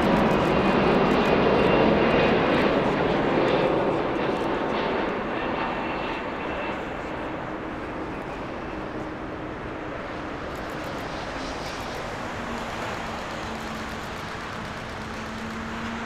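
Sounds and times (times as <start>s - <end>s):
jet engines running: 0.0s - 16.0s.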